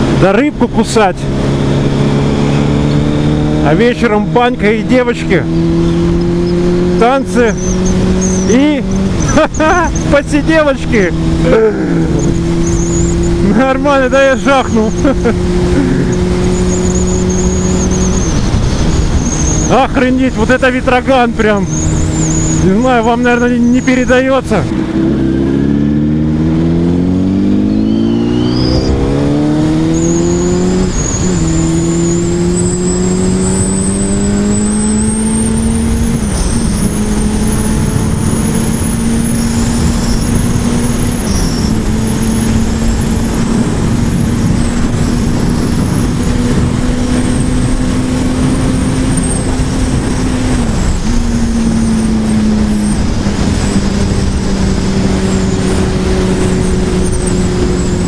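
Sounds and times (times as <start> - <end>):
motorcycle engine accelerating: 0.0 - 58.0
wind rush: 5.3 - 58.0.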